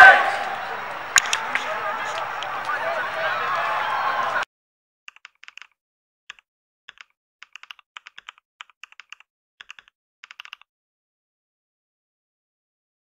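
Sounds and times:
keyboard typing clicks: 0:05.1 - 0:10.7.

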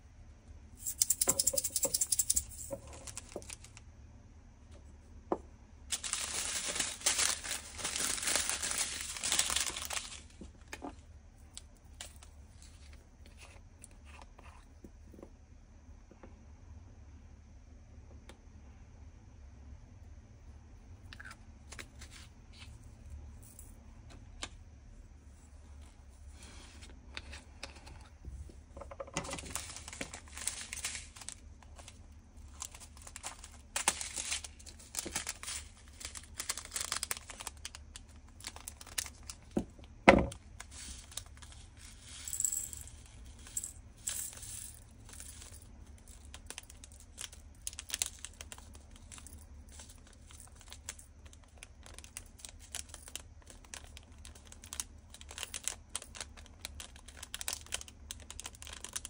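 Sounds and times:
plastic zip bags crinkling: 0:02.7 - 0:03.8, 0:05.9 - 0:10.7, 0:29.2 - 0:39.6, 0:44.1 - 0:59.0.

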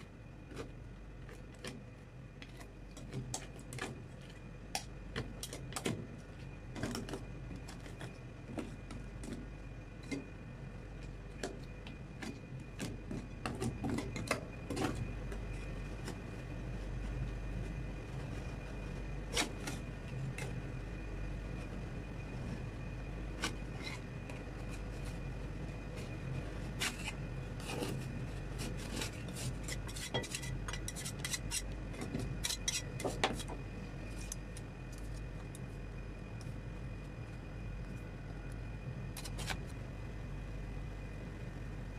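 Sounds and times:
steady low hum: 0:00.0 - 0:41.9
metal spatulas scraping steel plate: 0:28.8 - 0:31.6, 0:32.4 - 0:33.5.

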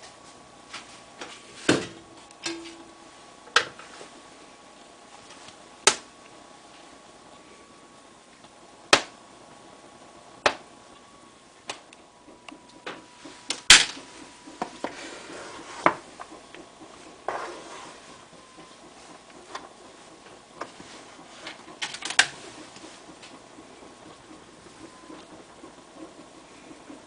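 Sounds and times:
paddle scraping through rice: 0:14.9 - 0:15.8, 0:17.3 - 0:18.2.

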